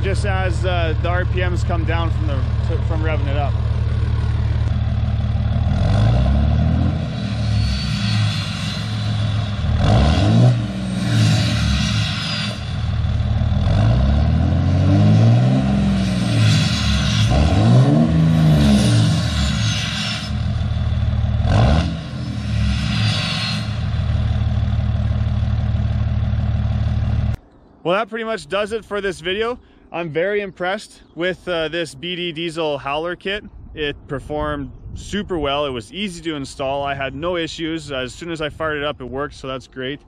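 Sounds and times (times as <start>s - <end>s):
diesel truck engine revving: 0.0s - 27.4s
exhaust brake whistle: 7.0s - 10.2s.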